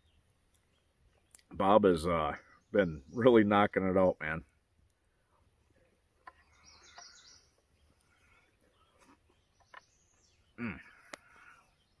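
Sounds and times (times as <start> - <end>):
faint bird chirps: 4.9 - 12.0.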